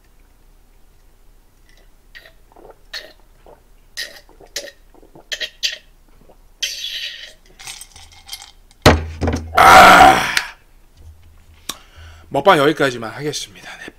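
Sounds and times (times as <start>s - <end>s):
man gulping and swallowing: 1.6s - 7.5s
breathy exhale: 11.6s - 12.3s.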